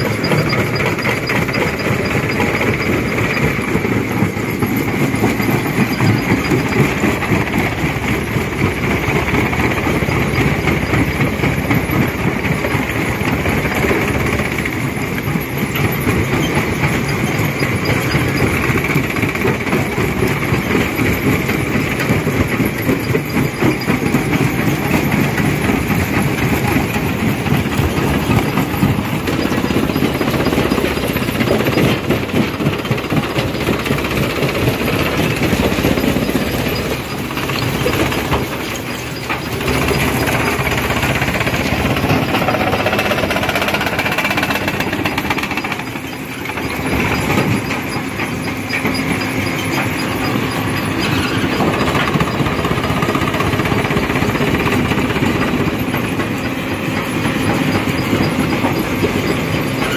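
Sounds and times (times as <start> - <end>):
rock crusher crushing stone: 12.5 - 56.4.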